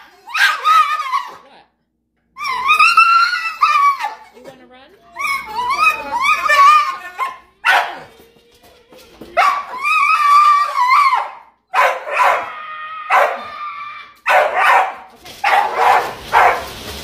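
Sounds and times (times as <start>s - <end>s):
dog howling and yowling: 0.0s - 1.4s, 2.4s - 4.2s, 5.2s - 7.4s, 9.4s - 14.7s.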